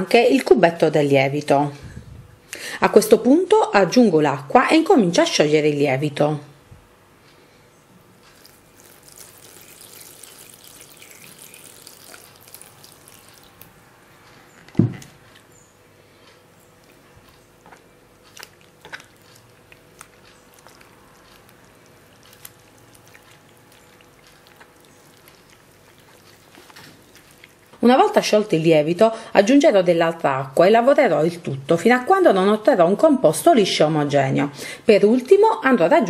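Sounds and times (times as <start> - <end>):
hand mixing wet dough: 8.1 - 32.8
water pouring into a bowl: 8.4 - 13.7, 20.6 - 27.6
thump: 14.8 - 15.0.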